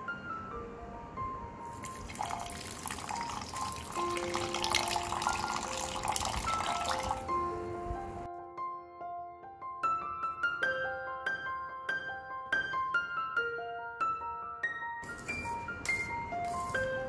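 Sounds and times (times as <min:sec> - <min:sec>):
soft piano music: 0:00.0 - 0:17.0
milk pouring into metal jar: 0:01.8 - 0:07.2.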